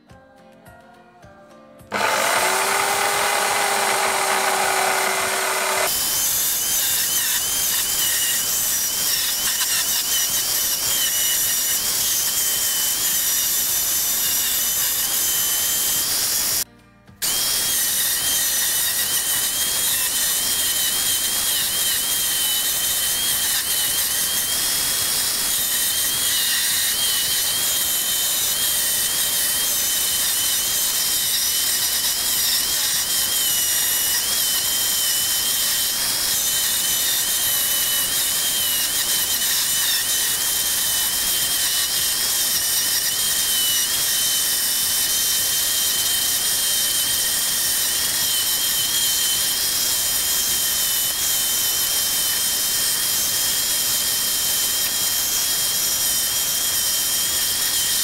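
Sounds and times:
drill with wire wheel scrubbing rust: 1.9 - 58.0.

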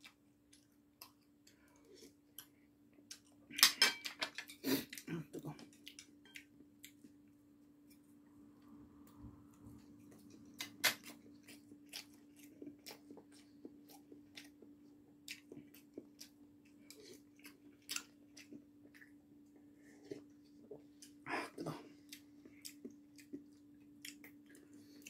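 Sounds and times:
steady low hum: 4.9 - 25.0
chewing noodles: 9.7 - 21.2, 21.8 - 25.0.

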